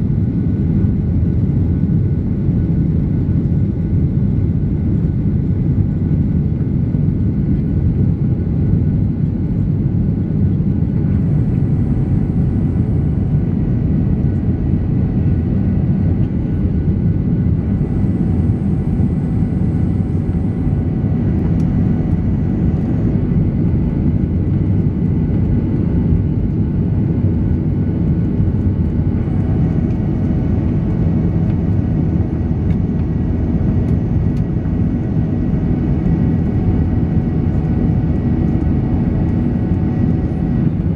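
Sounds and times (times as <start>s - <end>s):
faint hum: 0.0s - 40.9s
jet cabin engine roar: 0.0s - 40.9s.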